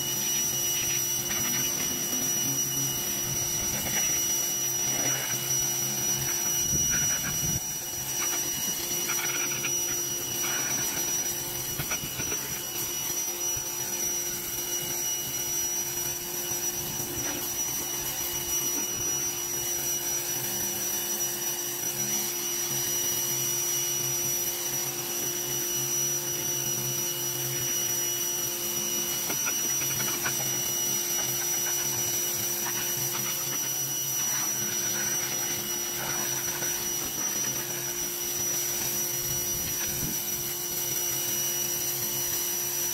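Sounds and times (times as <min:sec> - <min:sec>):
high-pressure water jet hissing: 0:00.0 - 0:42.9
pressure washer motor whine: 0:00.0 - 0:42.9.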